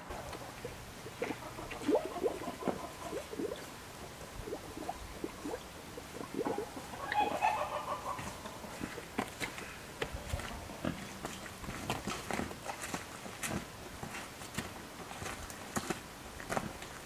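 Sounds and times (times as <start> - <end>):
pig blowing bubbles in water: 0.6 - 7.4.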